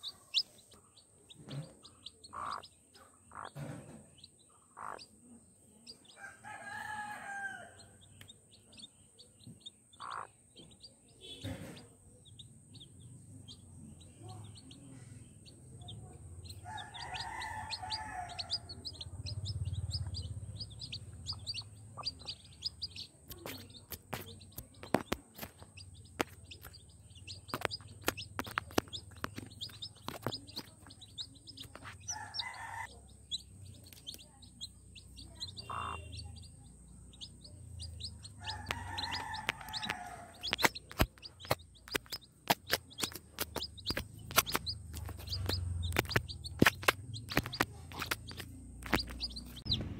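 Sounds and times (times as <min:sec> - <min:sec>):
chicks peeping: 0:00.0 - 0:07.4, 0:08.0 - 0:49.9
beaks pecking at grain: 0:16.4 - 0:19.0, 0:19.9 - 0:36.3, 0:37.8 - 0:49.8.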